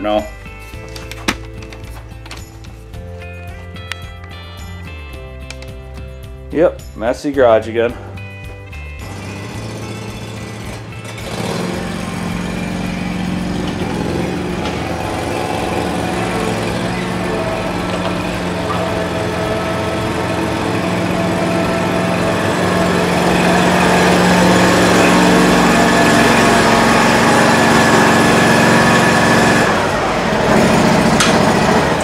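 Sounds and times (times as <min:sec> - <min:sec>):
riding mower engine running: 0:08.8 - 0:32.0.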